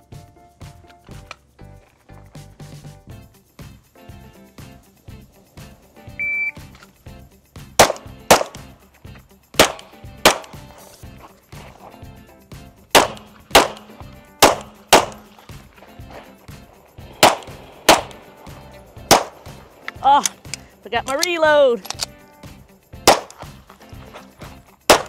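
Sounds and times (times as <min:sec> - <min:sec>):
shot timer beep: 0:06.2 - 0:06.6
pistol shots: 0:07.8 - 0:08.7, 0:09.6 - 0:10.6, 0:12.9 - 0:15.4, 0:17.1 - 0:18.4, 0:19.0 - 0:19.6, 0:23.0 - 0:23.5.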